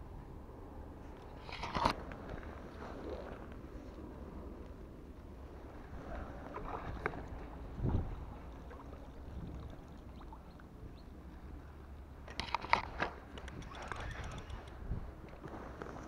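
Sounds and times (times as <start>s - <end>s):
wind rumble on microphone: 0.0s - 11.9s, 12.6s - 16.0s
sharp clicks: 12.3s - 14.8s
fishing reel being handled: 12.4s - 14.8s.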